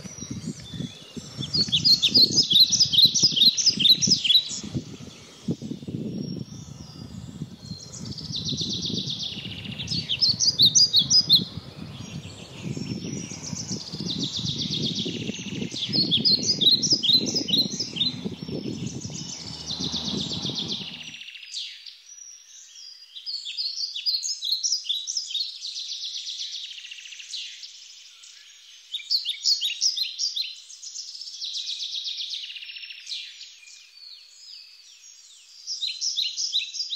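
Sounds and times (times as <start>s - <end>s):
songbirds singing: 0.0s - 36.9s
low rumble: 4.0s - 21.2s.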